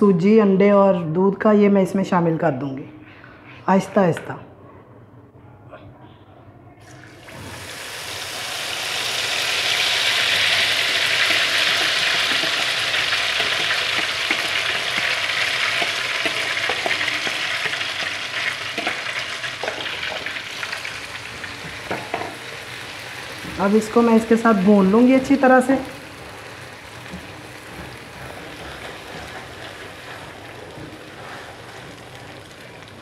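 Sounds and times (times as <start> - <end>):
batter sizzling in hot fat: 7.2 - 33.0
wooden spatula knocking and scraping: 11.2 - 17.9, 27.1 - 32.1.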